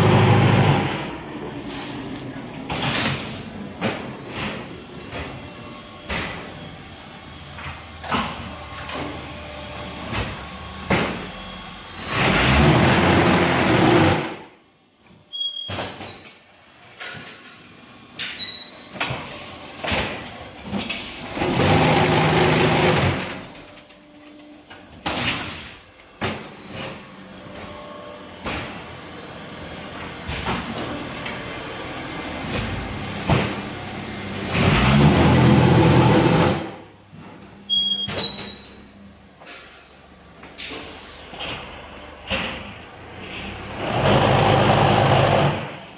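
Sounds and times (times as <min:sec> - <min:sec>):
machine clanks and knocks: 0:10.0 - 0:11.3, 0:16.9 - 0:27.8, 0:28.4 - 0:28.9.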